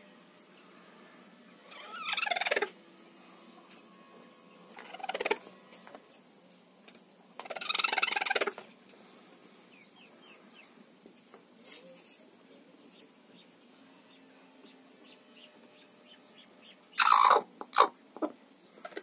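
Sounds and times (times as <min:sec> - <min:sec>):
hen calling: 0:01.6 - 0:02.8, 0:07.4 - 0:08.6, 0:15.0 - 0:18.3.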